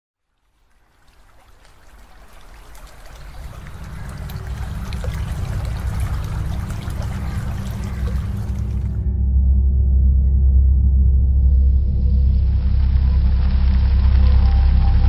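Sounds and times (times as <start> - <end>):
water trickling and dripping: 0.2 - 9.1
low drone: 2.9 - 15.0.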